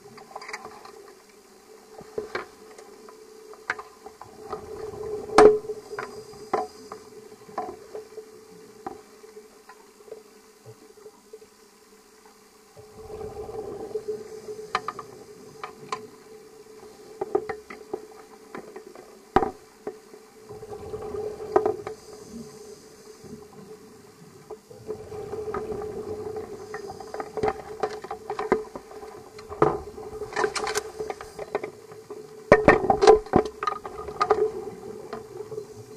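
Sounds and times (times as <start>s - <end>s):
diver's bubbles gurgling: 20.5s - 21.9s, 24.7s - 31.4s, 32.5s - 35.9s.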